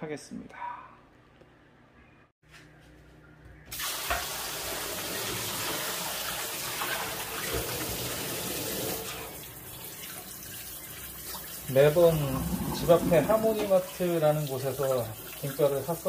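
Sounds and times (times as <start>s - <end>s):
water splashing in a steel sink: 3.7s - 16.0s.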